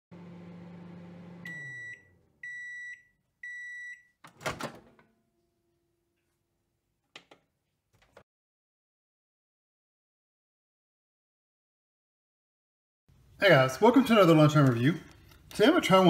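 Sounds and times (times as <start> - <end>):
microwave oven humming: 0.1 - 3.6
microwave beeps: 1.1 - 4.2.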